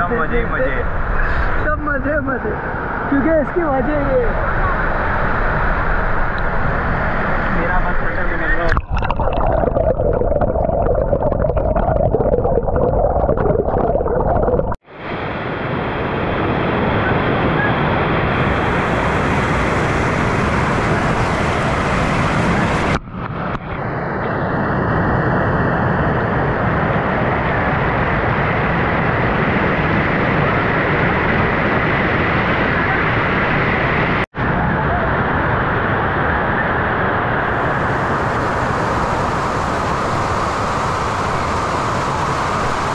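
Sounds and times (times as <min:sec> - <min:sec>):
muffled underwater gurgling: 0:08.6 - 0:14.8.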